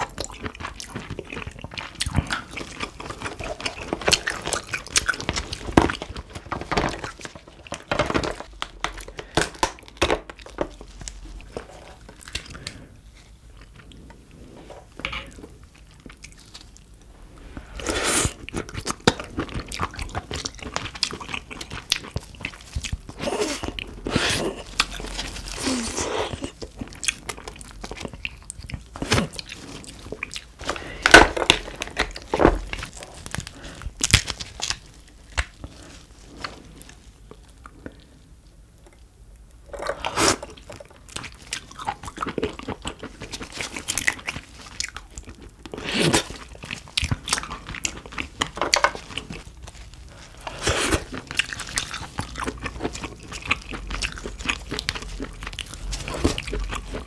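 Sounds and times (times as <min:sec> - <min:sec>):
shell crunches and cracks: 0:30.6 - 0:35.7
chewing and biting crab: 0:39.8 - 0:57.0.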